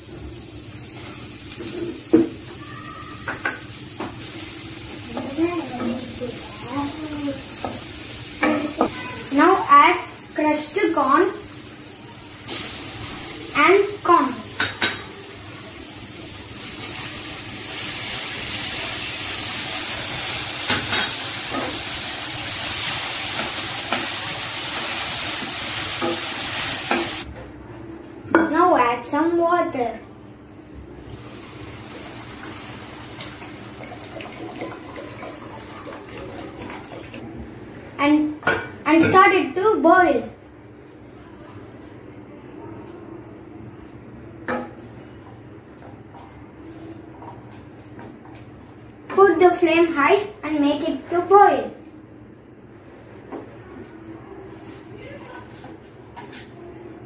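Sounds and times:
vegetables sizzling in a pan: 0.0s - 27.3s, 30.6s - 35.7s.

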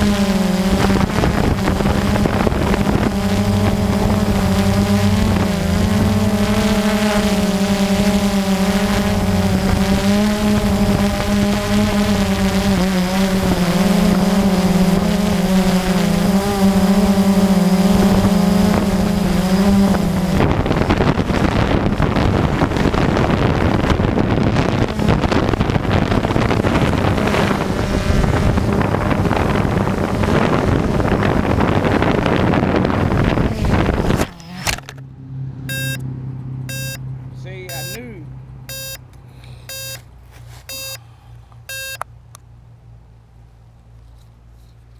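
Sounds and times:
rushing prop wash and wind: 0.0s - 12.5s, 13.4s - 34.2s
drone motors humming: 0.0s - 37.0s, 37.6s - 42.4s.

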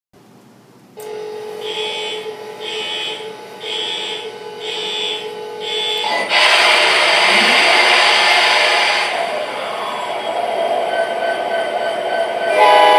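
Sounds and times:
steady hum: 0.2s - 12.9s
alarm-like beeps: 1.1s - 6.5s
diesel engine starting up: 5.8s - 11.6s.

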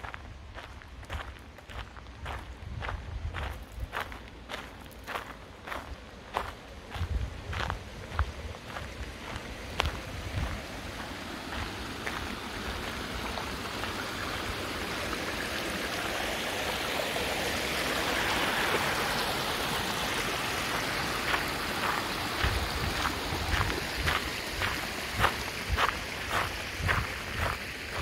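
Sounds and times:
footsteps on gravel: 0.0s - 14.2s, 20.6s - 28.0s
stream running over rocks: 3.5s - 28.0s.

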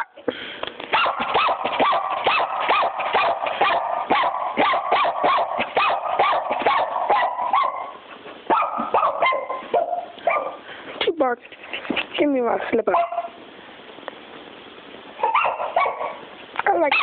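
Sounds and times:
puppy barking rapidly: 0.9s - 10.6s, 12.9s - 13.4s, 15.2s - 17.0s.

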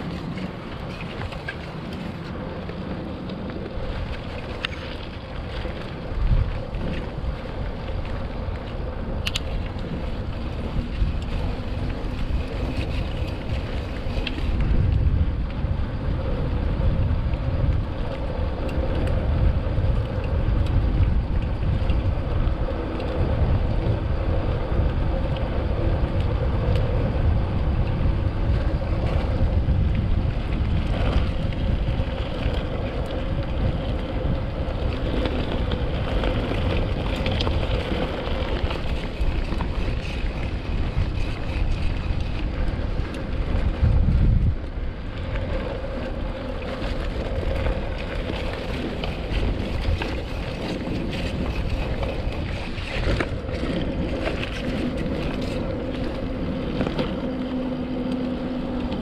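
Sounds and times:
bike tyres rumbling on dirt: 0.0s - 59.0s
wind buffeting microphone: 0.0s - 59.0s
bike frame rattling: 30.6s - 44.4s, 45.2s - 59.0s.

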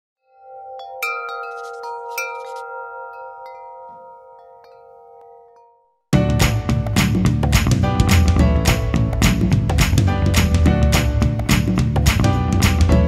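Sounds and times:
chimes ringing: 0.2s - 6.1s.

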